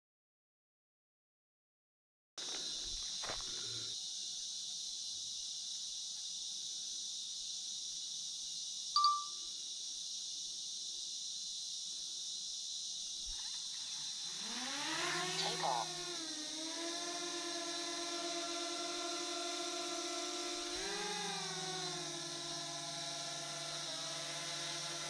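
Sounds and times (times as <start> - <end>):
high-pitched insect chorus: 2.4 - 25.0.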